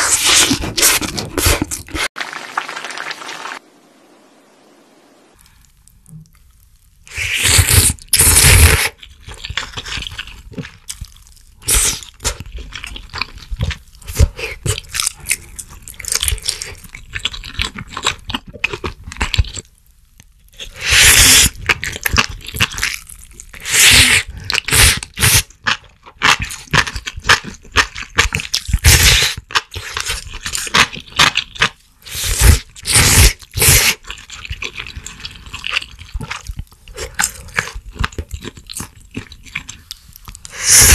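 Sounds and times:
slurping noodles: 0:00.0 - 0:02.2, 0:07.1 - 0:09.0, 0:32.0 - 0:38.2, 0:39.2 - 0:40.9
wet chewing: 0:05.7 - 0:19.7, 0:20.5 - 0:40.9.

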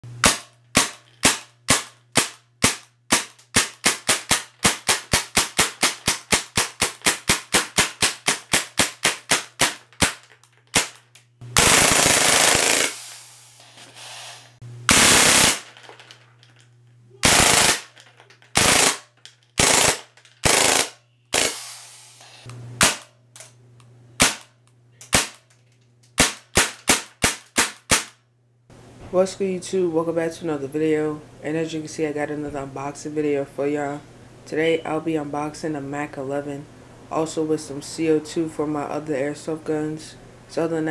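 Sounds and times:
airsoft gun full-auto bursts: 0:11.6 - 0:13.1, 0:14.9 - 0:15.7, 0:17.2 - 0:18.0, 0:18.6 - 0:21.9.

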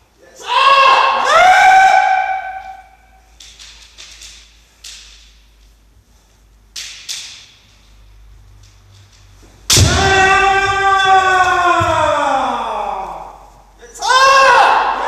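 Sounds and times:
person shouting: 0:00.3 - 0:02.8, 0:09.9 - 0:15.0.

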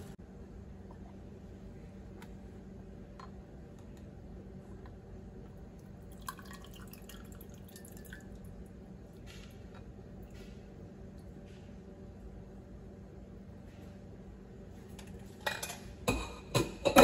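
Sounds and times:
low steady hum: 0:00.0 - 0:17.0
liquid trickling and dripping: 0:05.8 - 0:09.8.

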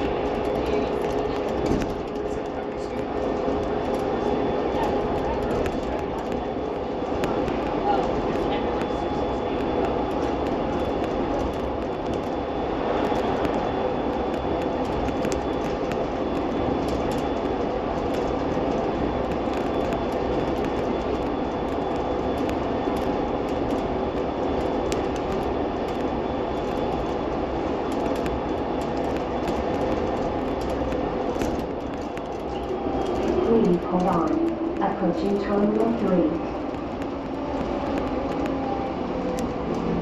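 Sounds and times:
faint whining tones: 0:00.0 - 0:40.0
train rumbling: 0:00.0 - 0:40.0.

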